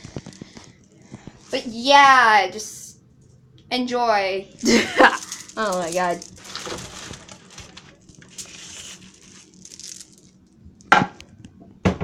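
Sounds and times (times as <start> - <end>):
rustling through cleaning supplies: 0.0 - 2.0, 4.5 - 10.9.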